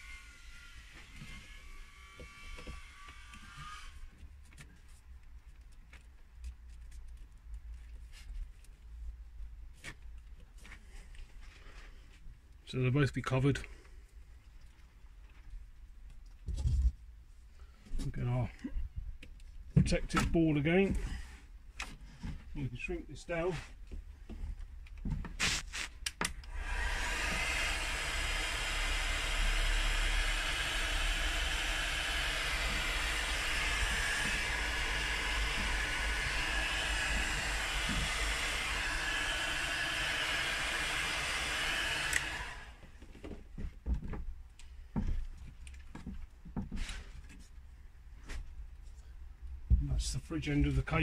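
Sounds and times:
heat gun blowing: 0.0s - 4.1s, 25.4s - 42.9s.

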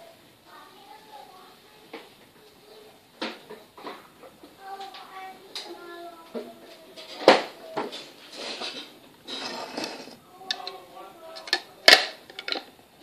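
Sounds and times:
plastic cup rubbing and rustling: 9.3s - 10.2s.

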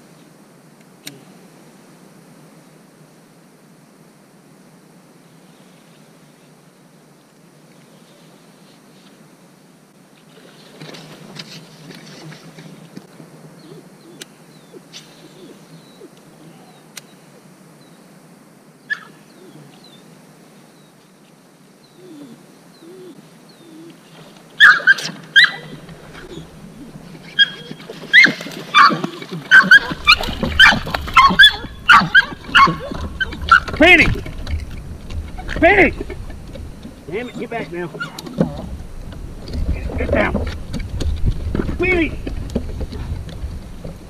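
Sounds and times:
small dog yipping and whining: 18.9s - 19.1s, 24.6s - 26.4s, 27.4s - 33.7s.

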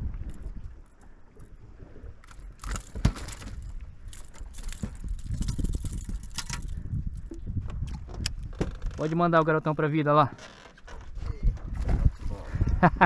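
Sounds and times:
wind rumbling on microphone: 0.0s - 9.8s, 10.8s - 13.0s
handling clatter and rustling: 2.2s - 9.2s.

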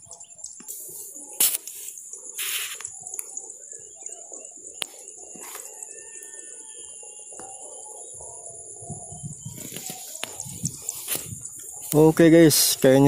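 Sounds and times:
birds calling: 0.0s - 13.0s
high-pitched hiss: 0.2s - 5.8s, 9.4s - 13.0s.

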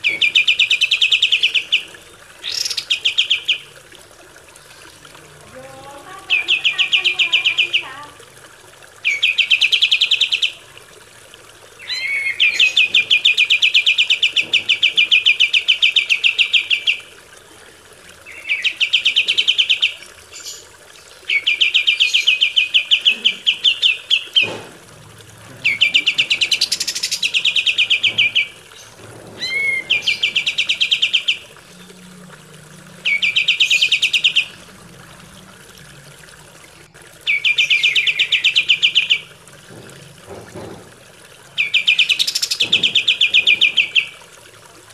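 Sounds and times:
bird singing rattling trills: 0.0s - 3.7s, 5.5s - 8.1s, 11.8s - 17.0s, 25.6s - 32.2s, 32.8s - 34.7s, 37.3s - 39.4s, 41.5s - 44.2s.

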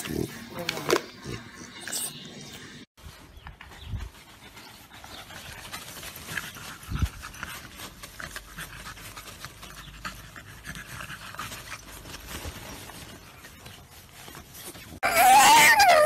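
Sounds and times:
fabric tunnel rustling: 11.5s - 15.0s
dog whining: 15.0s - 16.0s.

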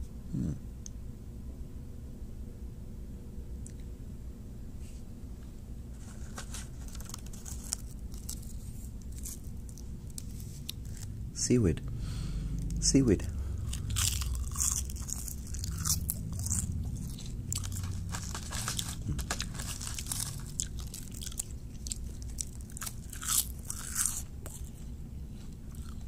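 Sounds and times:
seaweed snack crunching: 6.8s - 11.1s, 13.6s - 24.9s, 25.7s - 26.0s.

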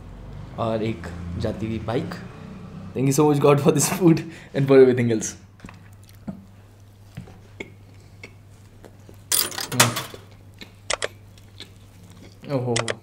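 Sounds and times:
man chewing food: 5.7s - 9.3s, 10.2s - 12.6s
wet mouth clicks: 7.6s - 9.2s, 10.3s - 13.0s
sharp clicks: 10.9s - 11.2s, 12.8s - 13.0s.

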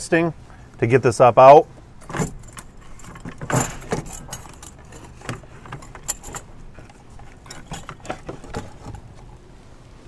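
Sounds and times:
metallic clinks and knocks: 2.0s - 9.4s.

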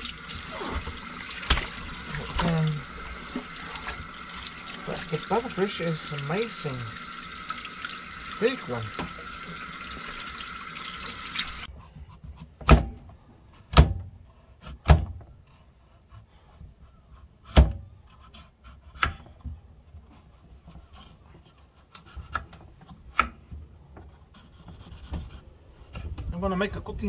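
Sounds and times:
tap water running into sink: 0.0s - 11.7s
knife scraping pumpkin: 15.6s - 19.4s, 20.1s - 26.1s.

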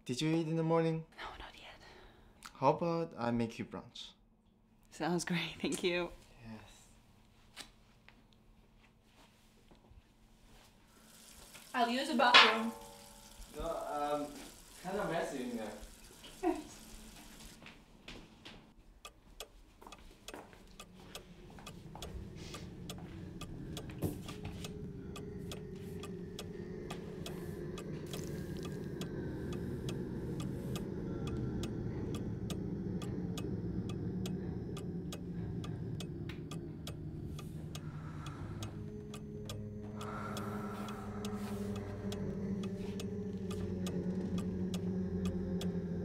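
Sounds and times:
low drone: 11.9s - 16.8s, 20.6s - 46.0s
clock ticking: 18.8s - 46.0s.

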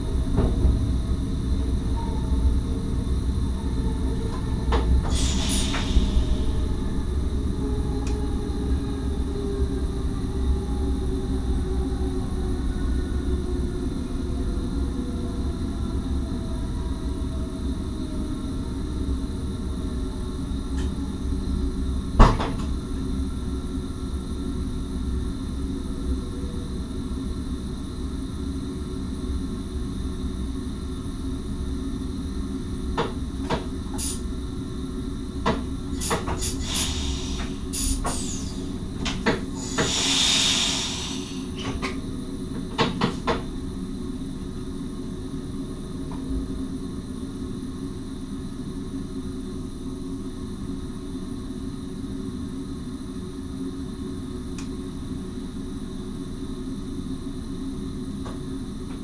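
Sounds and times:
faint falling whine: 0.0s - 32.8s
train cab low hum: 0.0s - 59.0s
short hiss: 36.0s - 38.6s, 39.6s - 41.5s.

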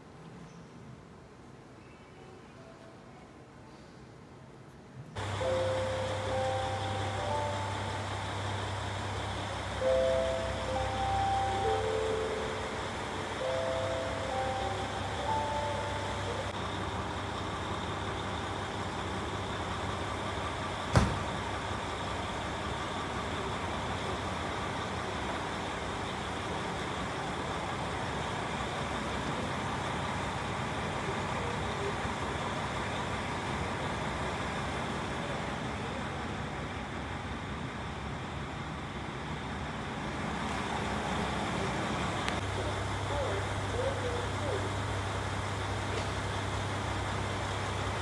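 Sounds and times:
diesel railcars idling: 5.2s - 48.0s.

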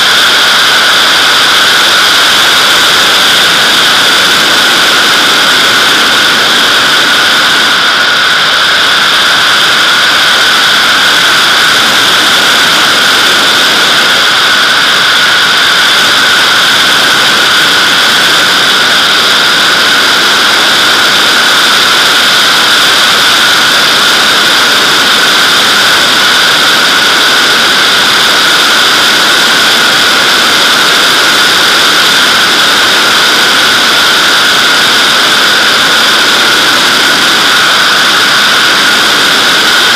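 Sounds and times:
airflow rushing over camera: 0.0s - 28.6s.

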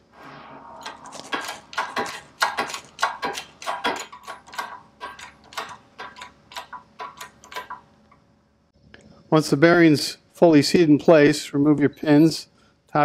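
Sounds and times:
hydraulic pump clicking: 0.8s - 8.2s.

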